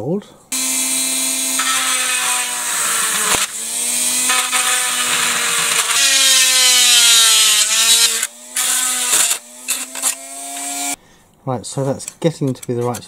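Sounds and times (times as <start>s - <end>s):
rotary tool grinding plastic: 0.5s - 11.0s.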